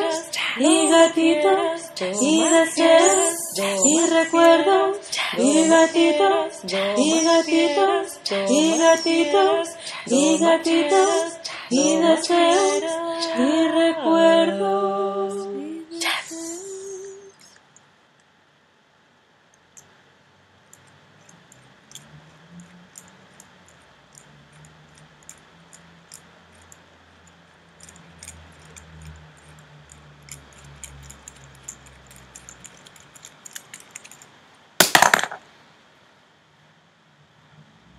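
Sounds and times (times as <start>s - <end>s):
plastic toy clicking and tapping: 20.7s - 35.4s.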